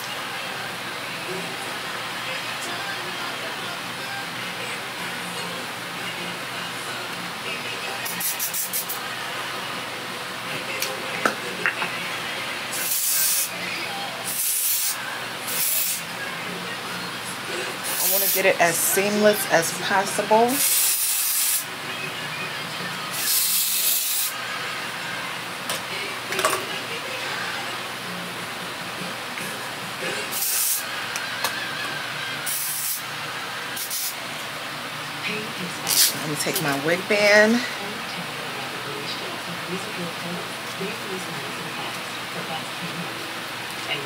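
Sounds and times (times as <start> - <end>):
spray bottle hissing: 8.2 - 9.0, 12.8 - 13.5, 14.3 - 16.0, 20.6 - 21.6, 30.3 - 30.8, 33.8 - 34.1.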